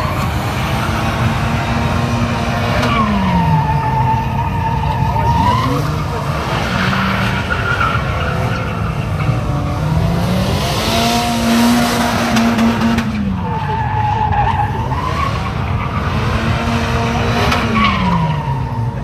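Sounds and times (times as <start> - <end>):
car engine revving: 0.0 - 19.0
wavering tyre squeal: 0.0 - 19.0.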